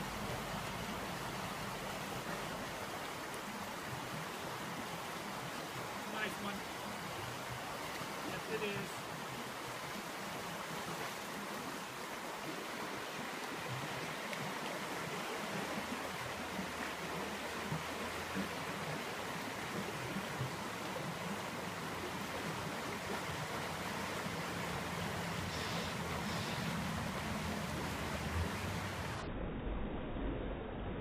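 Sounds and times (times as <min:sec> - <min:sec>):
creek water rushing over rocks: 0:00.0 - 0:29.3
low rumble: 0:27.4 - 0:31.0.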